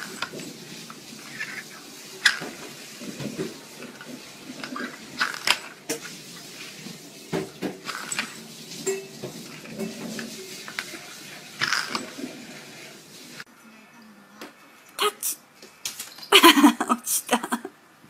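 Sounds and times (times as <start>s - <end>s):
plastic lids clattering on wooden floor: 2.2s - 6.1s, 11.6s - 12.3s.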